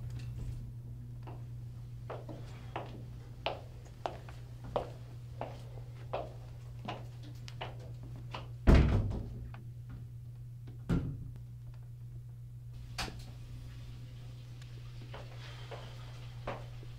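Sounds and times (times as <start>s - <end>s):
footsteps on tiled floor: 1.3s - 8.3s, 15.0s - 16.9s.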